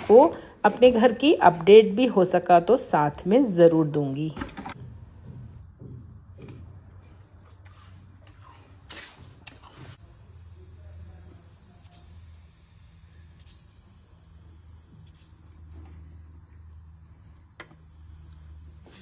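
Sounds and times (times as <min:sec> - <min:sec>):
pressure cooker hissing: 0:08.9 - 0:19.0.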